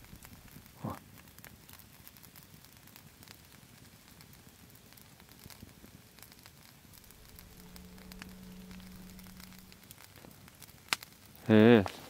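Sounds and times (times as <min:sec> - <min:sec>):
low steady hum: 0:00.0 - 0:00.8, 0:06.9 - 0:10.3
campfire crackling: 0:00.0 - 0:11.9.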